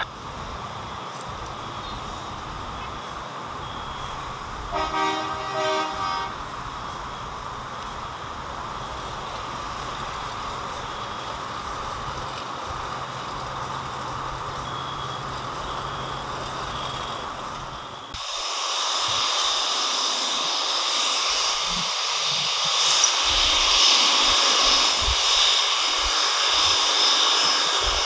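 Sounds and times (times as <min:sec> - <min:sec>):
distant jet airliner roar: 0:00.0 - 0:28.0
horn-like tone: 0:04.7 - 0:06.4.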